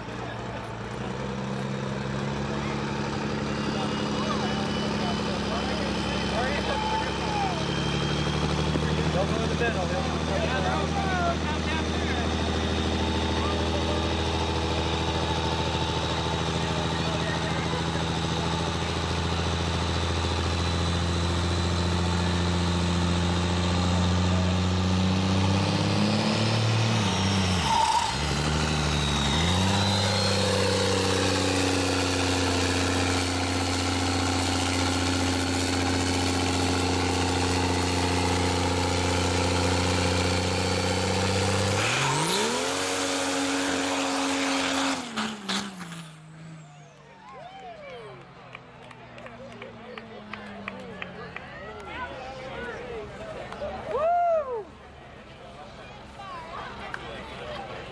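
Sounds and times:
diesel engine revving: 0.0 - 54.0.

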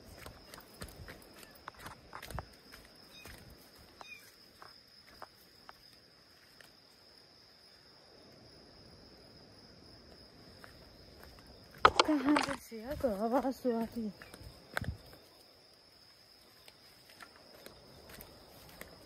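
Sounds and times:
insect trilling: 1.4 - 4.7, 10.9 - 18.2.

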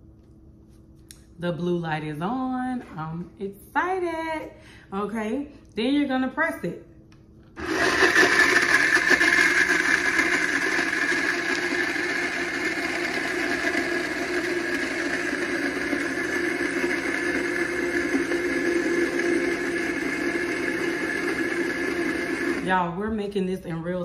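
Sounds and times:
blender motor humming and whining: 7.6 - 22.8.

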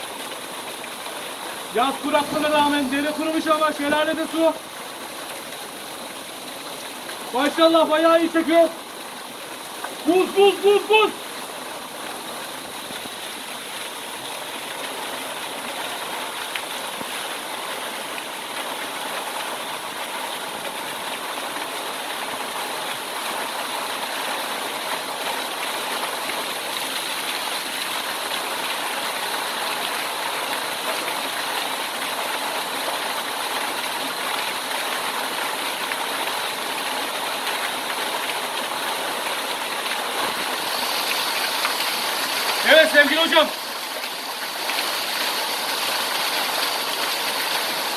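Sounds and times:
waterfall rushing: 0.0 - 47.9.

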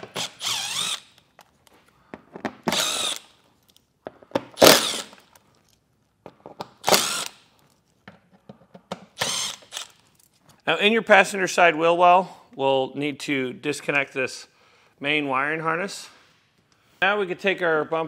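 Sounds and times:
power driver spinning out screws: 0.1 - 1.2, 2.7 - 3.3, 4.6 - 5.2, 6.8 - 7.4, 9.2 - 10.0
small clicks and handling noises: 3.5 - 4.2, 5.1 - 6.7.

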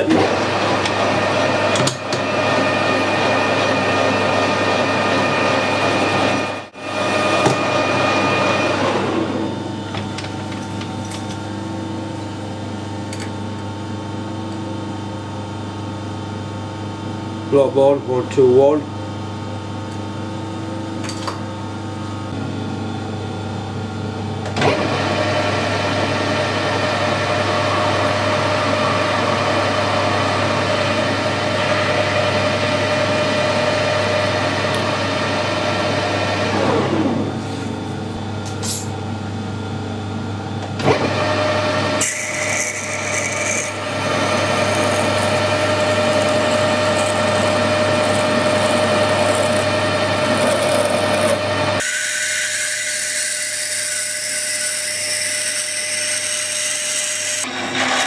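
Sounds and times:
metal lathe running: 0.0 - 9.4, 24.6 - 36.6, 40.9 - 58.0
drill boring into brass: 42.0 - 52.3.

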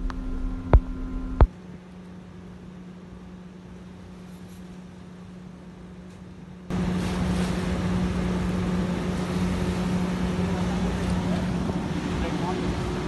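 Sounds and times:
machinery humming: 0.0 - 1.5, 6.5 - 13.0.

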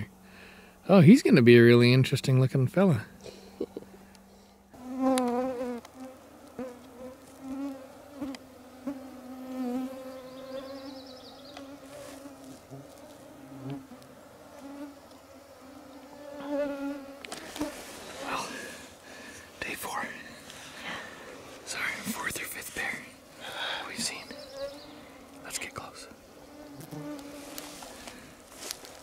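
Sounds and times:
flying insect buzzing: 4.7 - 29.0.

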